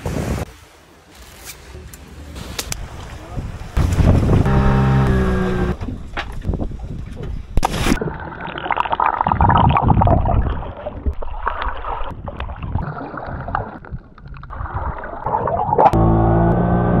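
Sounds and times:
steady buzzing hum: 0:04.4 - 0:05.8
muffled underwater rushing: 0:05.7 - 0:16.0.

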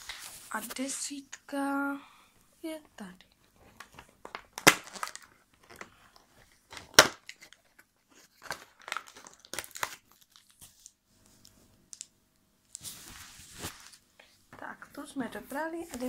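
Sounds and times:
plastic wrapper crinkling: 0:03.7 - 0:12.1.

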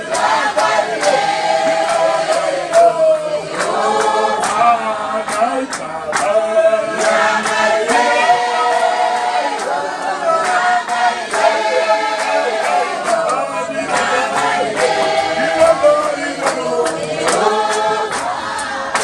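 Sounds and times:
congregation singing unaccompanied: 0:00.0 - 0:19.0
hand claps: 0:00.0 - 0:19.0.

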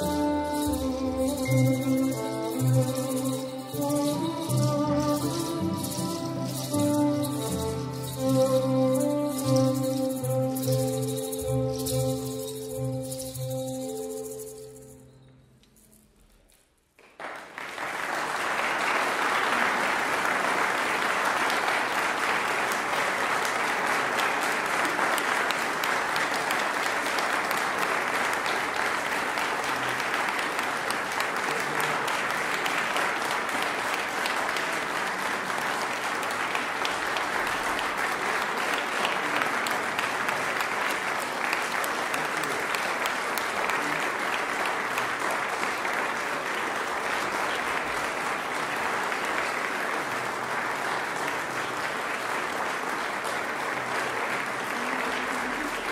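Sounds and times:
audience applauding: 0:17.0 - 0:55.9.

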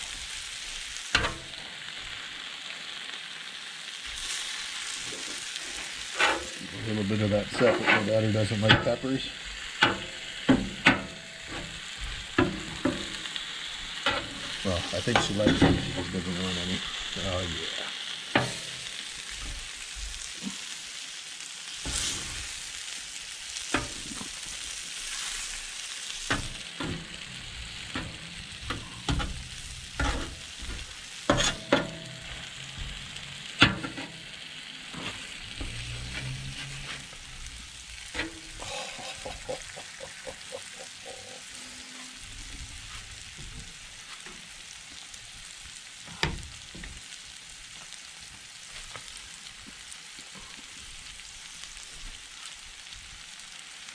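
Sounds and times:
food sizzling on a griddle: 0:00.0 - 0:53.9
metal spatulas scraping and clacking: 0:06.1 - 0:06.6, 0:07.6 - 0:08.9, 0:31.3 - 0:32.0.

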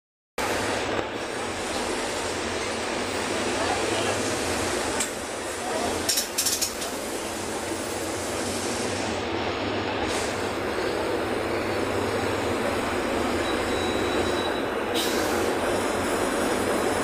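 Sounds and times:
bus engine drone: 0:00.4 - 0:17.0
tyre road noise: 0:00.4 - 0:17.0.

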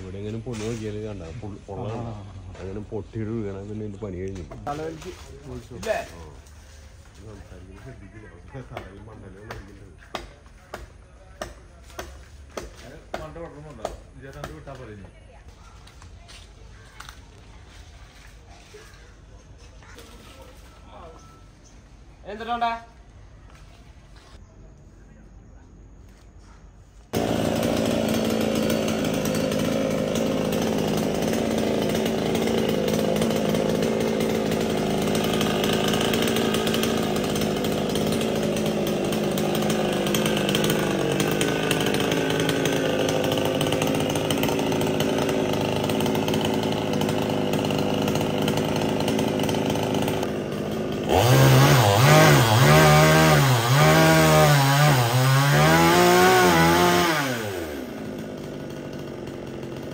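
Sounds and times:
chainsaw cutting wood: 0:08.6 - 0:15.0, 0:27.1 - 0:59.9.

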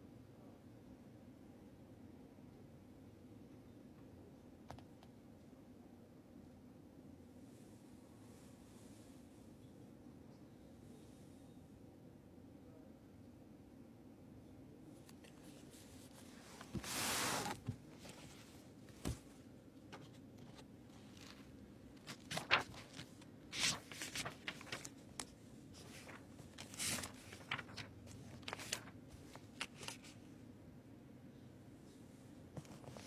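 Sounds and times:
book pages rustling: 0:15.0 - 0:30.2, 0:32.6 - 0:33.0
papery clicks: 0:19.9 - 0:30.1.

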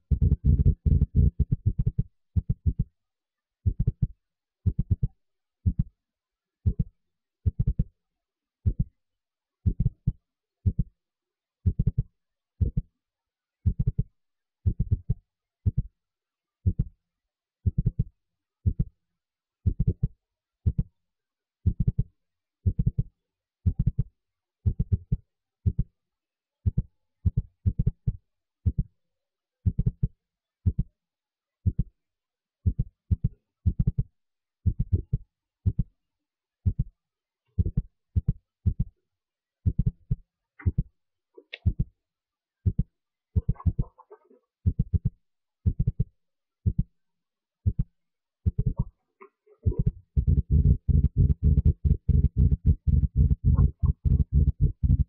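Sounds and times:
deep thumps: 0:00.1 - 0:01.6, 0:49.7 - 0:55.0.

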